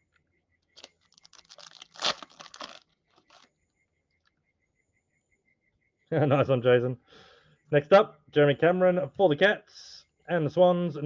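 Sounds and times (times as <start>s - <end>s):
foil wrapper crinkling: 0.8s - 3.5s.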